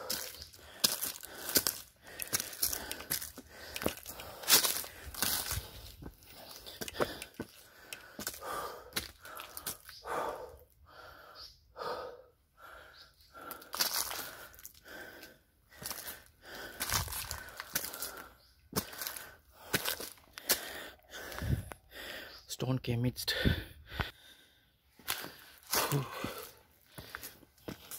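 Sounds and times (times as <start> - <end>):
footsteps on dry leaves: 0.0 - 7.2, 13.6 - 14.7, 15.7 - 20.7, 25.0 - 27.9
man breathing hard: 0.0 - 22.5, 23.2 - 27.9.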